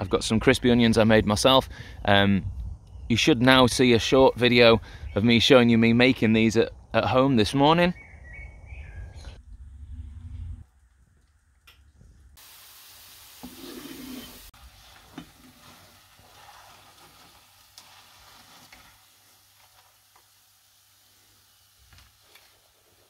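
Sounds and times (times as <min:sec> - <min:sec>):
hot oil sizzling: 0:12.4 - 0:23.0.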